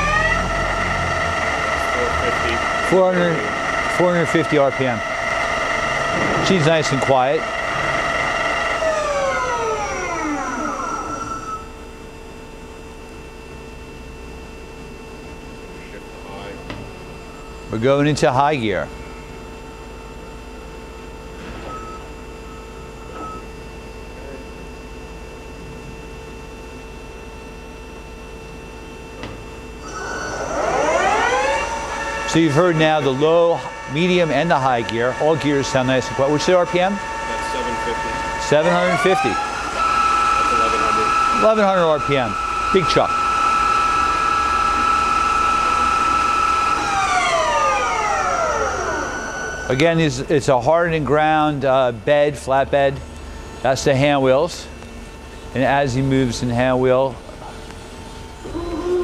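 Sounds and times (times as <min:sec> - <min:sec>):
lathe spindle humming: 0:00.0 - 0:12.0, 0:28.5 - 0:52.2.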